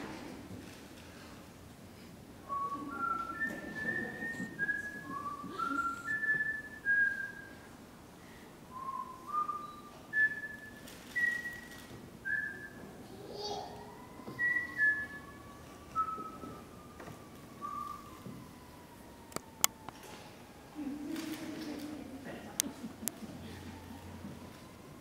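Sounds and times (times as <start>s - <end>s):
person whistling a slow tune: 2.5s - 7.7s, 8.7s - 12.9s, 14.3s - 16.7s, 17.6s - 18.2s.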